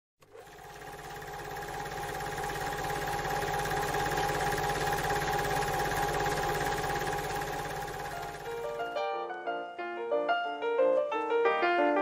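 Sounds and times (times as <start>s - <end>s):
film projector clatter and whine: 0.2s - 9.0s.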